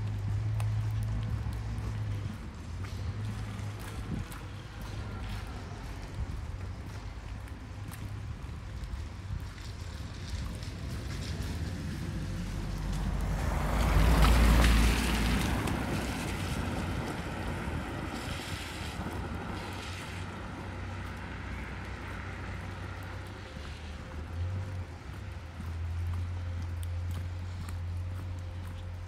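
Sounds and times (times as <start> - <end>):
wind rumble on microphone: 0.0 - 29.0
car tyres hissing on wet road: 8.7 - 28.8.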